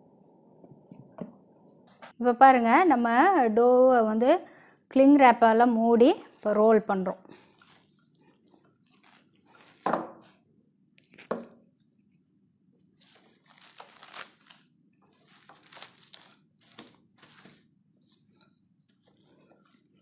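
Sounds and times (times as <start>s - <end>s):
cling film crinkling: 7.3s - 9.9s, 13.0s - 17.6s.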